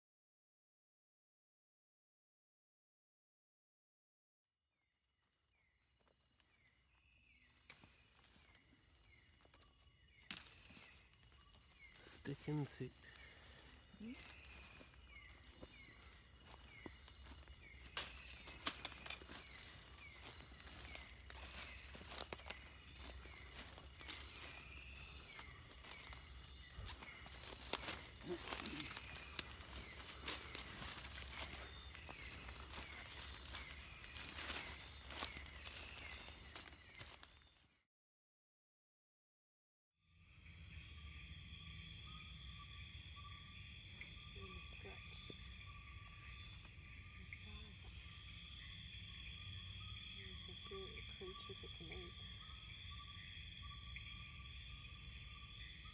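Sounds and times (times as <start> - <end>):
pulsing insect calls and chirps: 4.7 - 37.7, 40.0 - 55.9
insects buzzing: 5.2 - 37.6, 40.1 - 55.9
footsteps through undergrowth: 5.8 - 37.7
twigs snapping: 7.7 - 8.6, 10.2 - 10.9, 17.2 - 24.6, 26.8 - 32.8.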